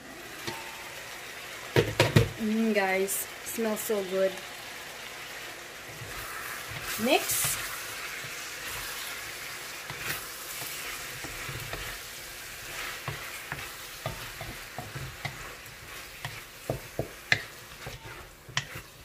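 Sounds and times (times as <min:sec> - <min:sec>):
eggplant sizzling in a pan: 0:00.0 - 0:19.0
utensil knocking and scraping pan: 0:13.0 - 0:19.0.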